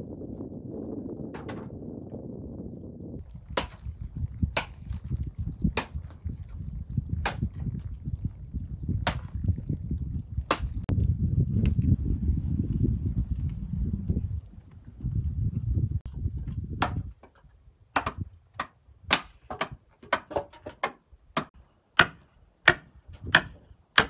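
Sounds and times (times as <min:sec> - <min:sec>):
machete striking wood: 0:03.6 - 0:03.8, 0:09.0 - 0:09.3, 0:16.8 - 0:17.1, 0:18.0 - 0:24.0.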